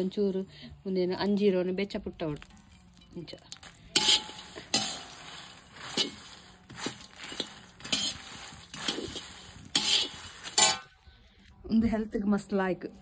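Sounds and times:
seeds rattling against metal: 0:02.2 - 0:11.0
metal spatula scraping iron pan: 0:03.9 - 0:11.0.

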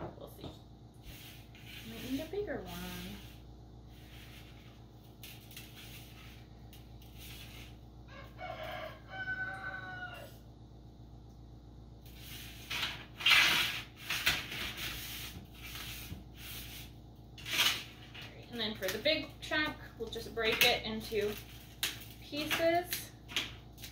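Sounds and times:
pieces scraping on metal tray: 0:01.0 - 0:07.8
rooster crowing: 0:08.1 - 0:10.5.

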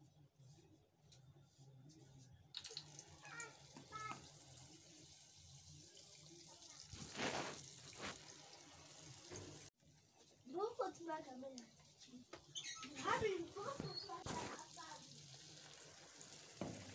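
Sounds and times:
hot oil sizzling: 0:02.6 - 0:09.8, 0:13.5 - 0:16.9.

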